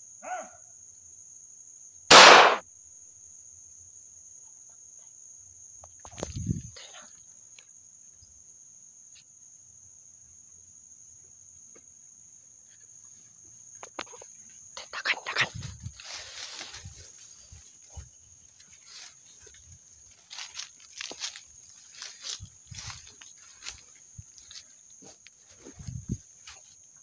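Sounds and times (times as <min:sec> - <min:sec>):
high-pitched insect buzz: 0:14.7 - 0:26.8
vegetation rustling and crackling: 0:14.9 - 0:27.0.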